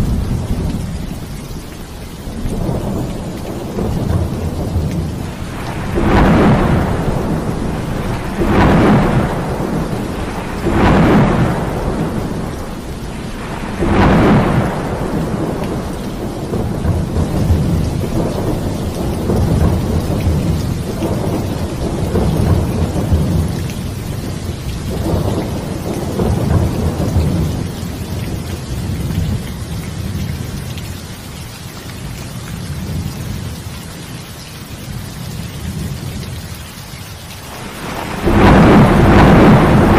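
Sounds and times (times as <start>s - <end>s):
rolling thunder rumbles: 0.0s - 30.7s, 37.4s - 39.9s
heavy rain falling: 0.0s - 39.9s
loud thunder peals: 2.5s - 23.5s, 24.8s - 27.8s, 37.5s - 39.9s.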